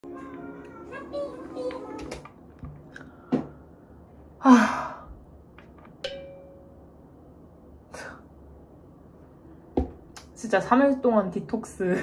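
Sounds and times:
woman's breathy sighing groan: 4.4 - 5.2.

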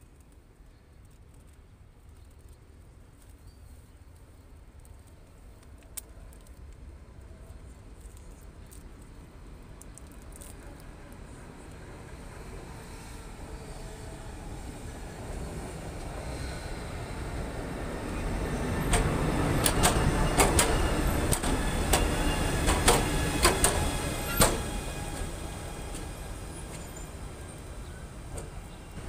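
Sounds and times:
train rumble: 4.1 - 29.0
wheels clicking on rails: 18.1 - 29.0.

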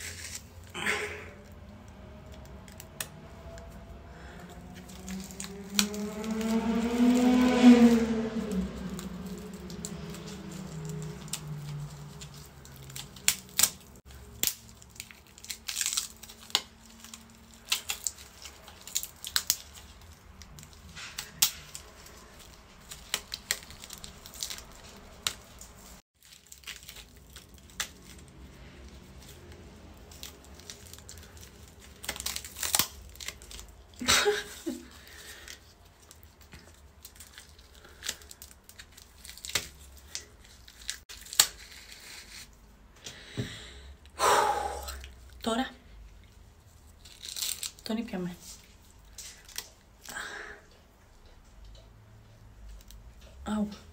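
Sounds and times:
prosthetic crackling and tearing: 0.0 - 42.7, 44.9 - 50.3
scissors snipping: 4.7 - 6.6.

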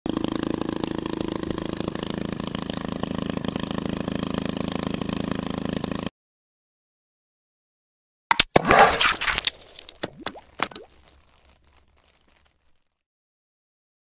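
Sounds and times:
small motor whirring with rattle: 0.1 - 6.1.

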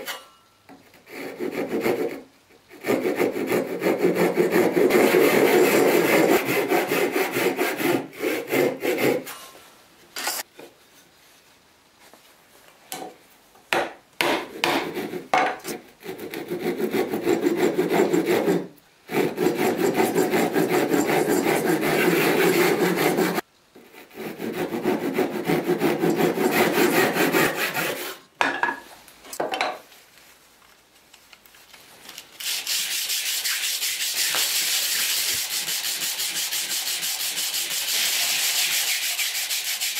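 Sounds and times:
hand saw cutting wood: 0.8 - 9.4, 14.2 - 28.2, 32.4 - 39.9
wood rubbed on sandpaper: 2.8 - 9.2, 16.0 - 28.2, 32.4 - 39.9.

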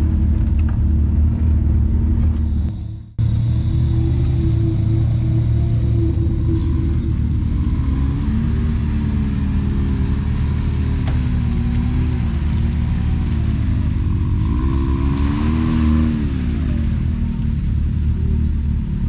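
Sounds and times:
engine running and revving: 0.0 - 19.0.

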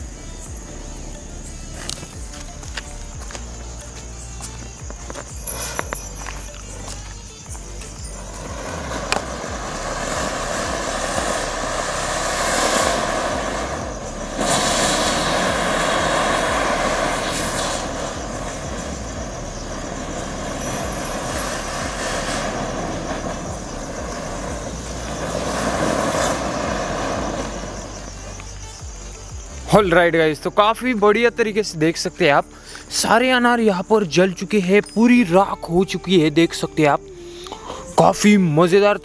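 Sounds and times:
fireworks hissing sparks: 0.0 - 31.0.

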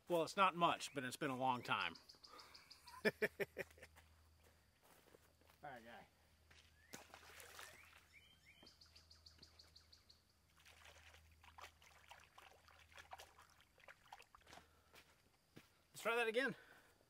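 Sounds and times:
birds chirping: 0.0 - 4.0, 6.3 - 10.6
bird trill: 1.2 - 3.0, 6.8 - 10.3
water splashing and dribbling: 6.6 - 8.2, 10.3 - 15.1.

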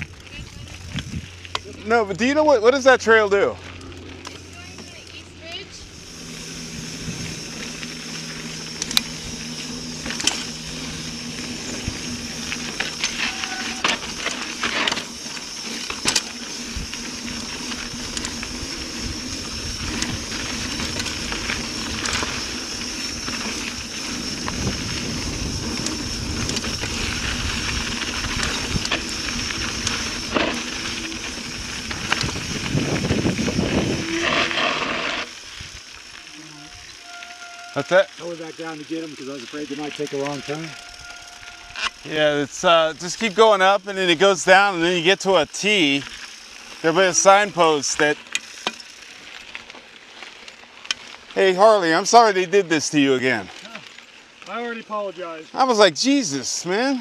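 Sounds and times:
bike rattling over bumps: 0.0 - 57.0
tyre and wind rush: 17.7 - 35.8.

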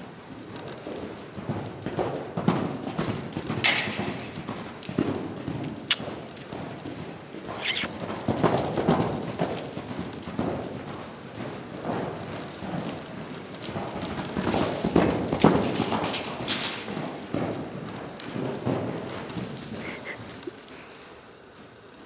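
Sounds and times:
horse hoofbeats on dirt: 0.0 - 22.0
sharp noises: 7.5 - 7.9.

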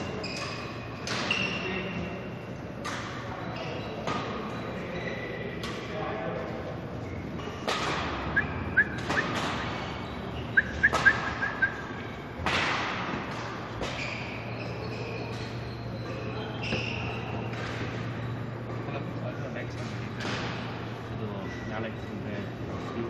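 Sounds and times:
shoe squeaks: 0.0 - 2.4, 3.4 - 5.4, 8.4 - 12.3, 14.0 - 18.6, 21.4 - 22.2
racket hitting shuttlecock: 7.6 - 8.4, 9.0 - 9.9, 10.5 - 11.6, 12.4 - 14.0.

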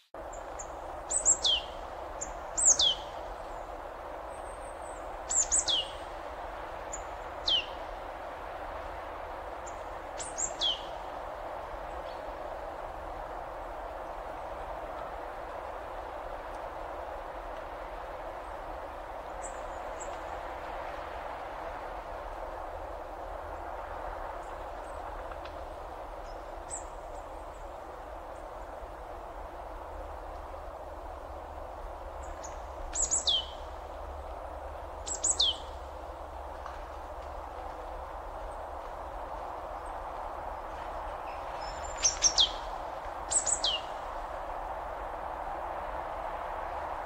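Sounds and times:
outdoor background noise: 0.0 - 47.0
bird chirps: 32.4 - 33.6, 41.6 - 42.6.

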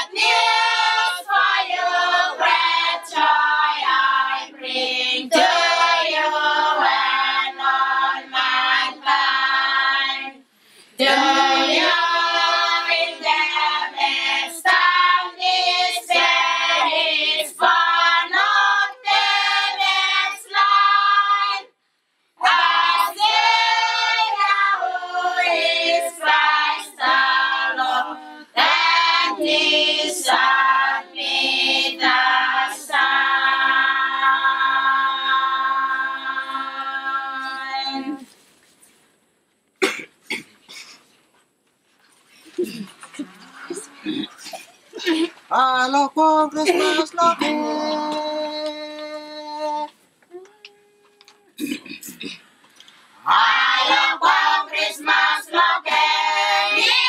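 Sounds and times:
group singing a carol: 0.0 - 21.8, 22.4 - 38.5, 46.5 - 50.0, 53.0 - 57.0.

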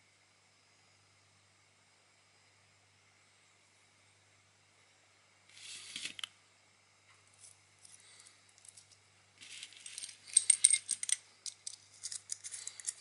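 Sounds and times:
small metal clicks and scrapes: 7.4 - 13.0.

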